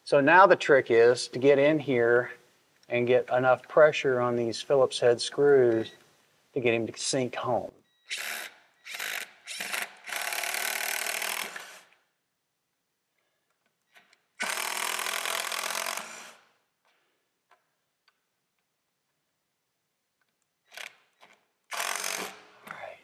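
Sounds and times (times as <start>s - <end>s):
cordless drill driving screws: 8.1s - 12.0s, 14.0s - 16.5s, 20.6s - 22.6s.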